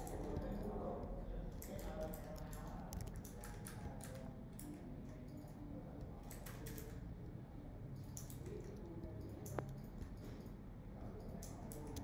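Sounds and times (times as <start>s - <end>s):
computer keyboard keystrokes: 1.5s - 7.0s, 8.0s - 10.5s
mouse clicks: 8.0s - 10.5s.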